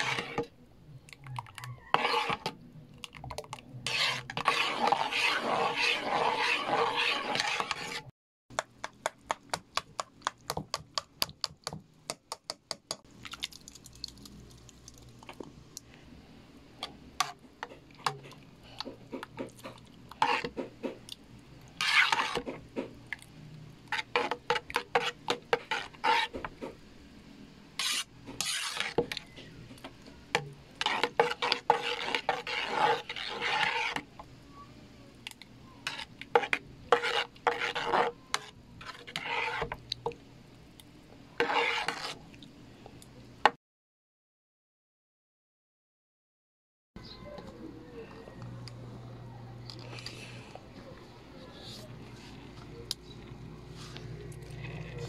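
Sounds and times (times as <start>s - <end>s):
spoon stirring in metal pot: 0.0s - 0.5s, 1.1s - 15.5s, 16.8s - 26.8s, 27.8s - 34.3s, 35.2s - 40.2s, 41.4s - 42.2s.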